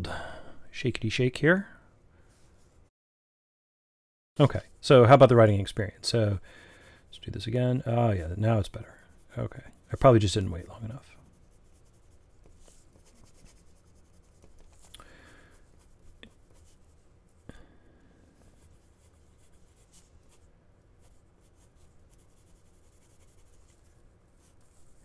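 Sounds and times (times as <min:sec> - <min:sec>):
fountain pen scratching on paper: 0:09.2 - 0:14.9, 0:21.0 - 0:23.8.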